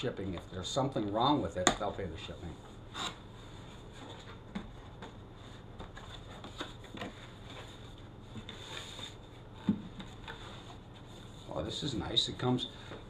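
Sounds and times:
scrape of cardboard: 0:02.9 - 0:04.3, 0:06.1 - 0:09.3, 0:10.1 - 0:11.6.

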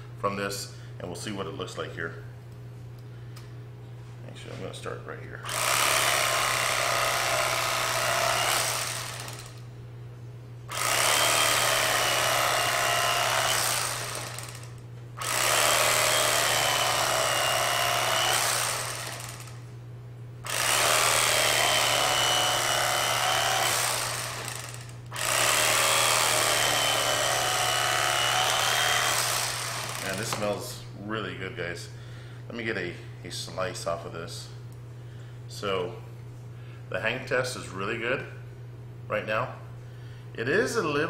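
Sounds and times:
electric carving knife sawing meat: 0:05.5 - 0:09.6, 0:10.7 - 0:19.6, 0:20.5 - 0:30.6.

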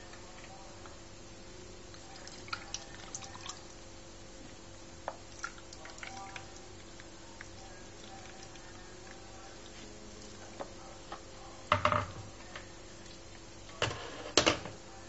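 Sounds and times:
liquid dripping and trickling: 0:01.9 - 0:03.8, 0:05.1 - 0:10.4.

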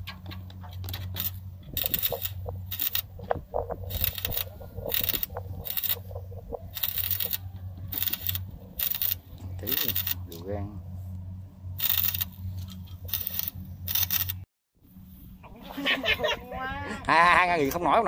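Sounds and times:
steady low hum: 0:00.0 - 0:18.0
welding arc crackling: 0:00.7 - 0:10.4, 0:11.8 - 0:14.5.

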